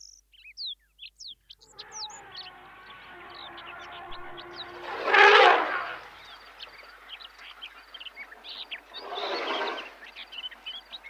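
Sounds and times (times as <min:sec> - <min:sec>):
birds chirping: 0:00.0 - 0:11.0
loud rushing noise: 0:03.3 - 0:06.1.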